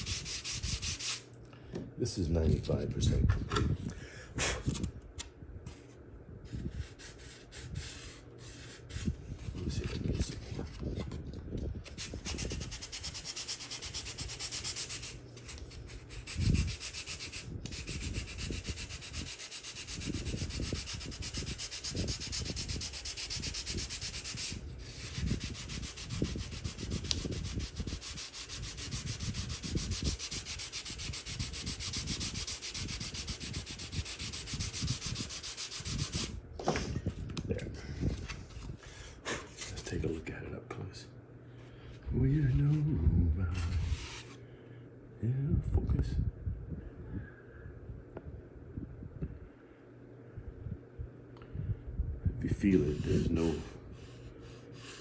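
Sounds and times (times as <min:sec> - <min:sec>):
sandpaper rubbing on wood: 0:00.0 - 0:01.2, 0:06.6 - 0:09.5, 0:11.9 - 0:36.4, 0:43.6 - 0:44.4, 0:52.7 - 0:54.2, 0:54.8 - 0:55.0.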